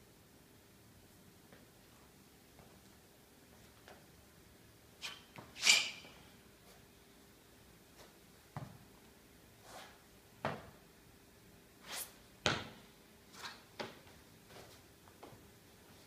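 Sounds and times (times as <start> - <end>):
feet thudding on rubber floor: 8.5 - 8.8, 10.4 - 10.7, 12.4 - 12.8
shoes scuffing floor: 9.6 - 10.7, 11.8 - 16.0.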